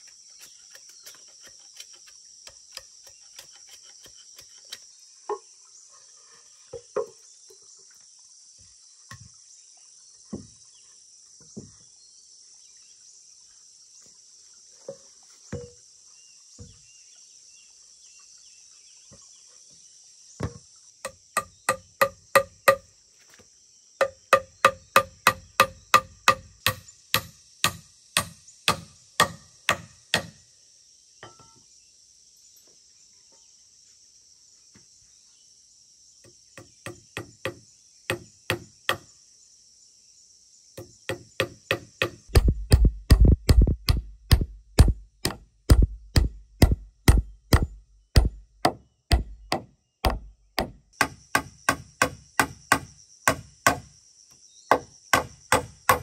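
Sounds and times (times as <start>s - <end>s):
insects buzzing: 0.0s - 56.0s
wooden knocks of logs: 6.7s - 7.2s, 14.9s - 15.8s, 20.4s - 22.8s, 24.0s - 30.4s, 40.8s - 53.9s, 54.7s - 56.0s.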